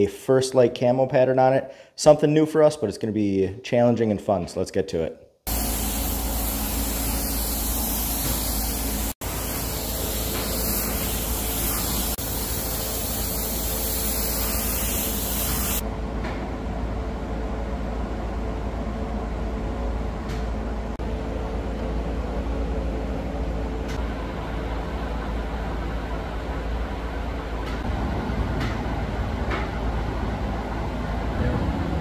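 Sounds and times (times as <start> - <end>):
paint spray gun hissing: 5.5 - 15.8
steady low rumble: 24.2 - 32.0.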